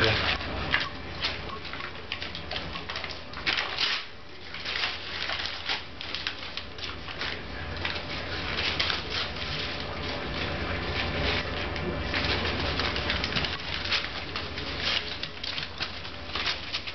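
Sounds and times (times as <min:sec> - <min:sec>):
paper ripping and crinkling: 0:00.0 - 0:16.9.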